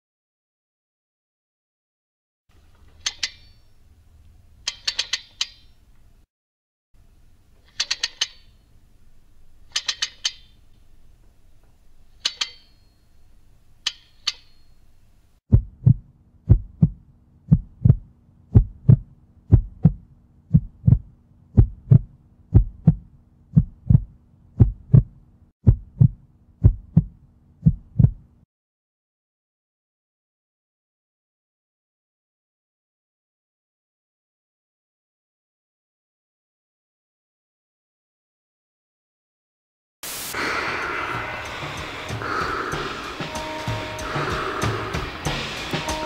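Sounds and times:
faint steady hum: 7.0 - 25.4
heartbeat thumps: 15.5 - 28.3, 41.0 - 46.0
hissing crackling bursts: 40.0 - 46.0.

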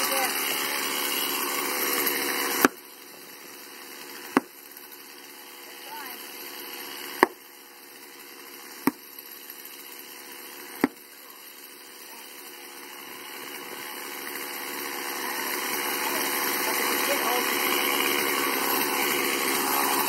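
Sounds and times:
small engine running: 0.0 - 20.0
sledgehammer striking wedge: 2.6 - 2.8, 4.3 - 4.6, 7.2 - 7.4, 10.8 - 11.0.

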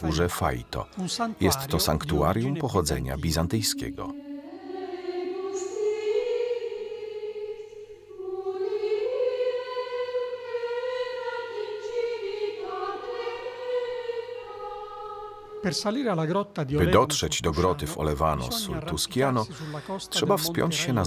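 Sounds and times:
choir singing held notes: 0.0 - 16.0.

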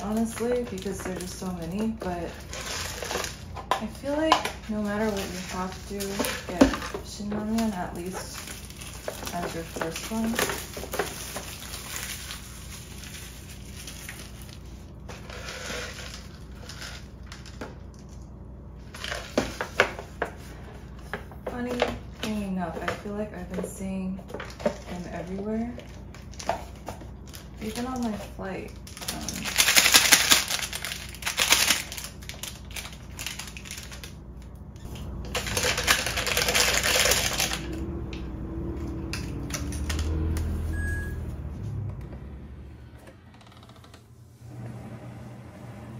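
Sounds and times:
plastic wrap crinkling: 0.0 - 17.6, 24.2 - 37.9.

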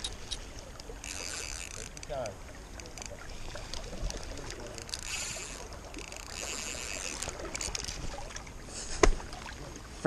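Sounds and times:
fishing reel knocks and clicks: 0.0 - 3.1, 4.7 - 7.9
rushing river water: 0.0 - 10.0.

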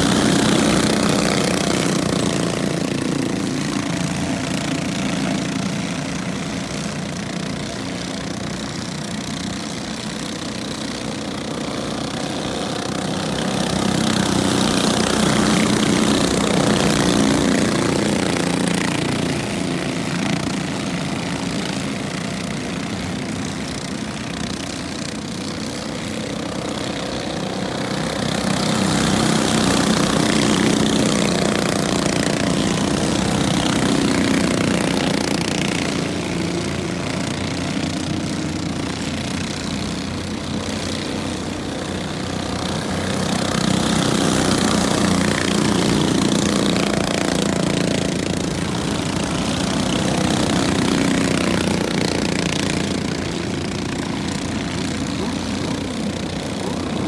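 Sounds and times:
small race car engines buzzing: 0.0 - 57.0.

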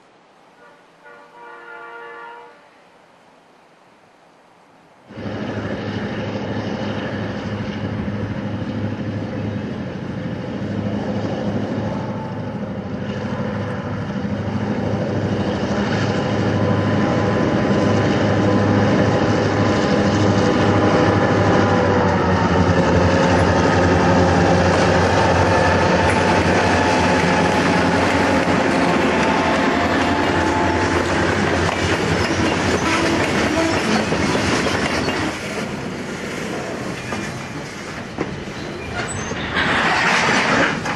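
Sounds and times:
diesel locomotive engine droning: 5.0 - 40.9.

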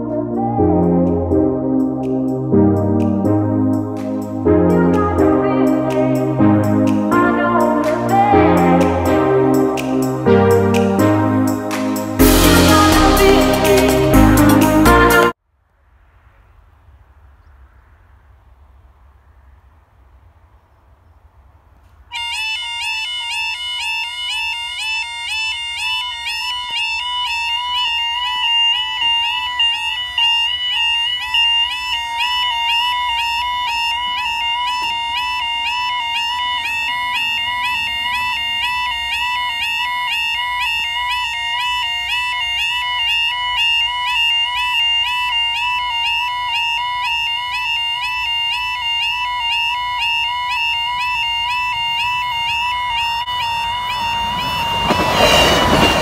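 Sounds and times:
level crossing warning alarm: 0.0 - 15.4, 22.1 - 56.0.

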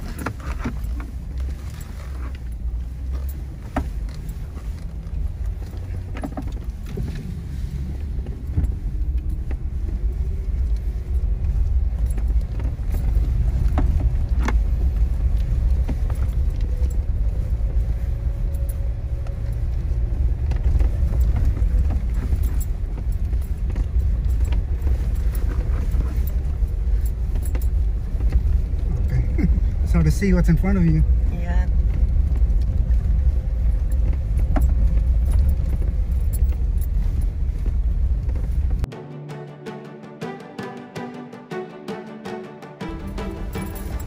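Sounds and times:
engine and tyre rumble: 0.0 - 39.0, 42.6 - 44.0.

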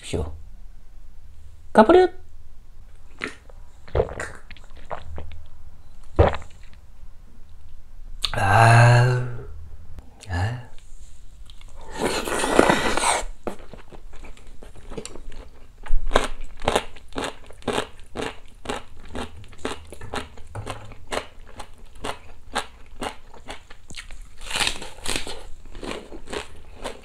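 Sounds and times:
crunchy chewing: 11.4 - 27.0
slurping noodles: 11.8 - 13.4.

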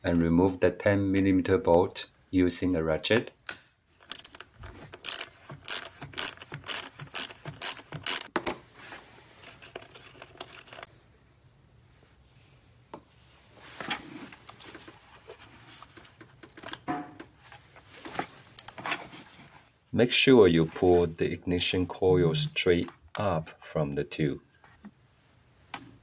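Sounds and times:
handling sounds: 3.9 - 10.9
hand ratchet clicking: 5.0 - 8.3.

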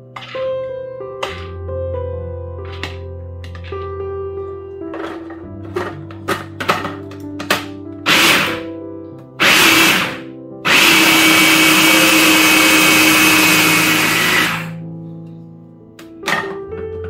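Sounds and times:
food processor motor grinding: 8.1 - 8.7, 9.4 - 14.8.

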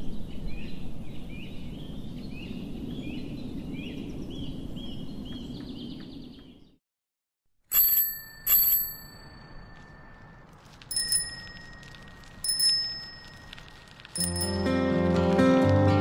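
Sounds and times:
bicycle bells ringing: 7.7 - 15.0
acoustic guitar music: 14.2 - 16.0.

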